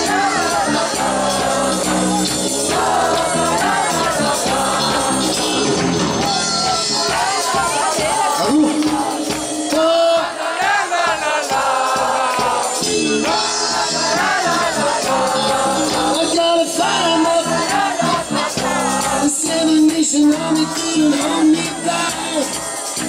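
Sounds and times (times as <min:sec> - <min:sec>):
live band music: 0:00.0 - 0:23.0
man singing into microphone: 0:06.4 - 0:10.4, 0:11.1 - 0:22.6.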